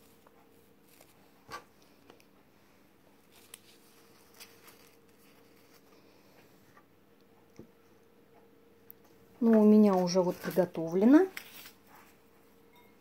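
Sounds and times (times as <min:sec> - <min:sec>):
ribbon rustling in fingers: 0:00.0 - 0:02.4, 0:03.2 - 0:06.1, 0:10.0 - 0:12.2
faint steady hum: 0:00.0 - 0:13.0.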